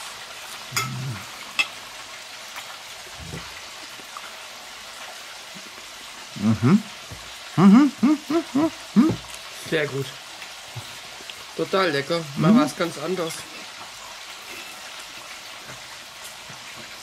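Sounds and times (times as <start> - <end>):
deep fryer oil bubbling: 0.0 - 17.0
man murmuring: 0.8 - 1.3, 6.3 - 6.9, 7.6 - 9.2.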